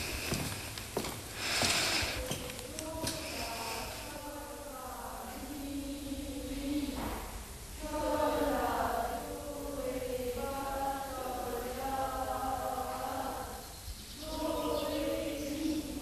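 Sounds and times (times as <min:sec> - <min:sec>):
person singing long held notes: 0:01.9 - 0:07.1, 0:07.7 - 0:16.0.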